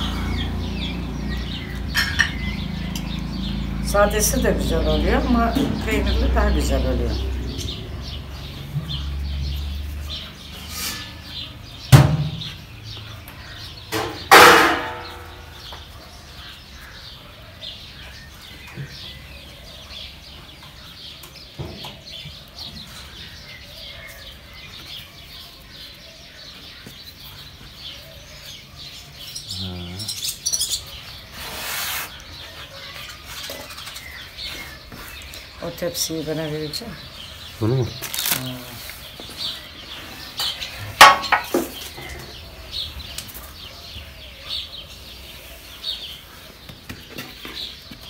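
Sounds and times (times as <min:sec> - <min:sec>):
small birds chirping: 0:00.0 - 0:48.0
sharp knock: 0:14.0 - 0:15.4.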